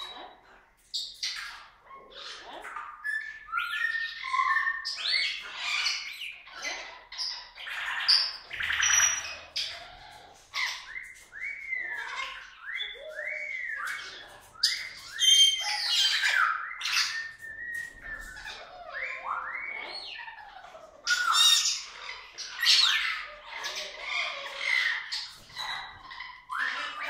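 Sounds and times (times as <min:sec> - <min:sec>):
cockatoo squawking: 0:01.2 - 0:27.0.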